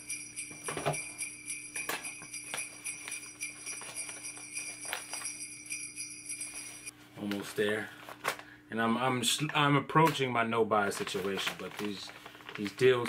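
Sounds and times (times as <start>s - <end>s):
high-pitched ringing tone: 0.0s - 6.9s
newspaper crinkling and rustling: 2.7s - 5.4s, 10.7s - 13.0s.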